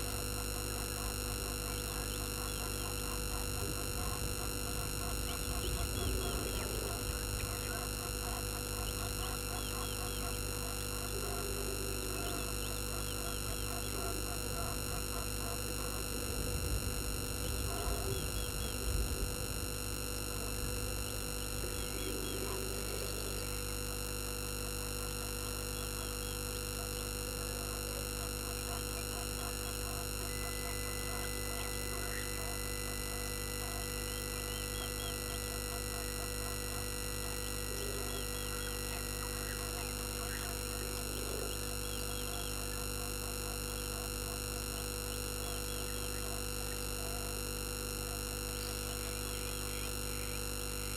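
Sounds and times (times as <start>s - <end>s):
steady electrical hum: 0.0s - 50.9s
small animals chirping: 0.9s - 19.4s, 28.6s - 44.1s.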